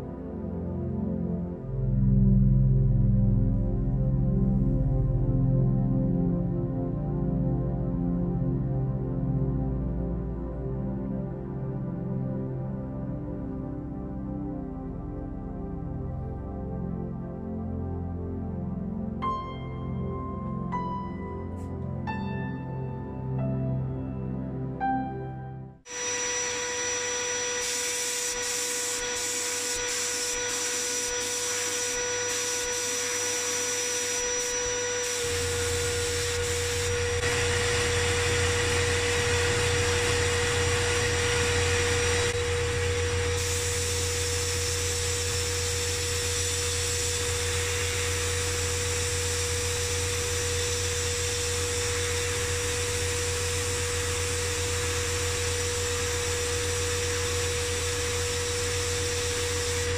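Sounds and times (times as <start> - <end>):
air blast gun hissing: 25.9 - 59.9.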